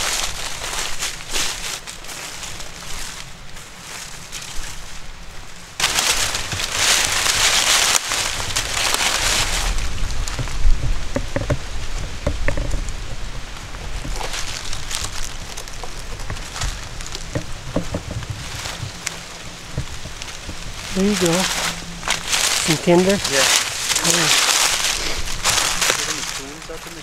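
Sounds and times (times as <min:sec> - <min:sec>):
footsteps crunching dry leaves: 0:00.0 - 0:27.0
cracks of dry branches: 0:05.8 - 0:27.0.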